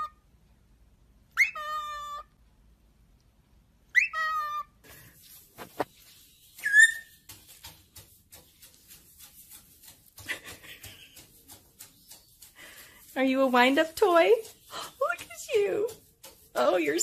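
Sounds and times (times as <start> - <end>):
bird whistling: 3.9 - 4.6, 6.6 - 7.1.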